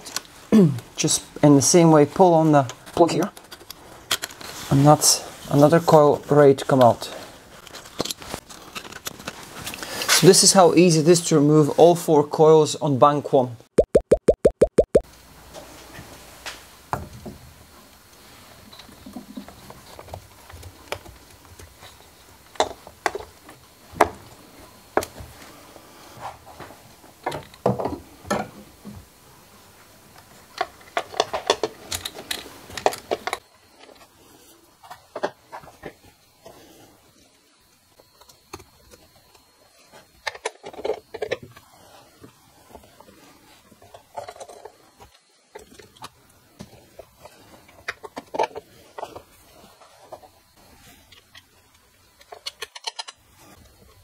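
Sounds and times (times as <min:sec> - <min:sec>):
plastic and metal parts clicking: 0:52.2 - 0:53.2.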